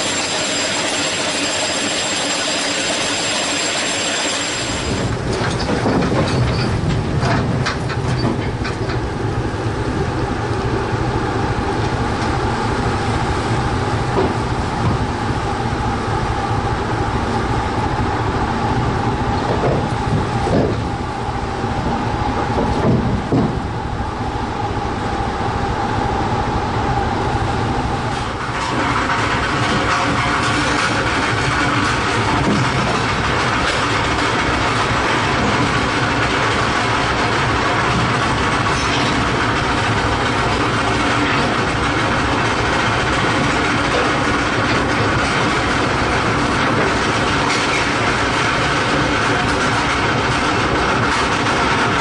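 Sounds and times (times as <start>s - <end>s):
chains squealing: 0.0s - 5.0s
churning water: 0.0s - 24.8s, 27.0s - 52.0s
engine room hissing and humming: 0.0s - 52.0s
ship engine rumble: 0.0s - 52.0s.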